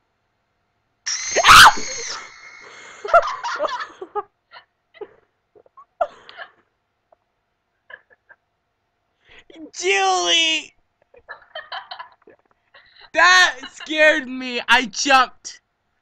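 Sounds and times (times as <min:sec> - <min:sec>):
loud shrieking scream: 0:01.1 - 0:02.8.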